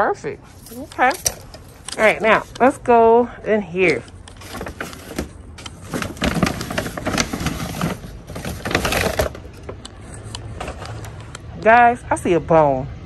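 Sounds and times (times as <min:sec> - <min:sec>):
plastic bag crinkling: 0:04.1 - 0:11.1.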